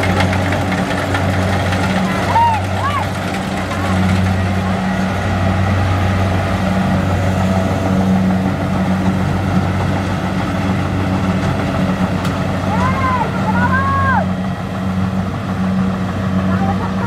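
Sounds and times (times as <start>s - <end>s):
combine harvester engine humming: 0.0s - 17.0s.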